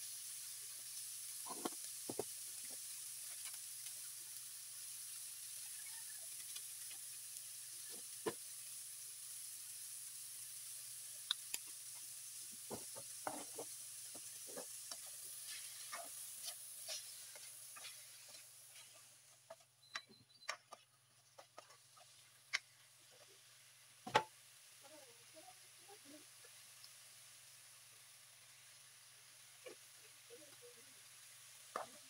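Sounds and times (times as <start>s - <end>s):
vegetables sizzling in a wok: 0.0s - 32.0s
spatula scraping a pan: 12.7s - 19.7s, 20.7s - 22.3s.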